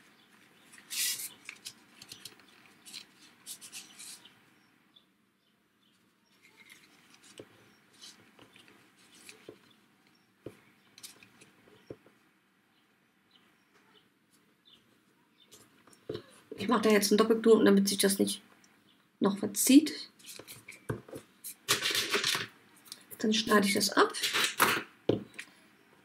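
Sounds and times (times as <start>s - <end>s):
paper card rustling and tapping: 0.7s - 4.2s, 20.2s - 22.5s.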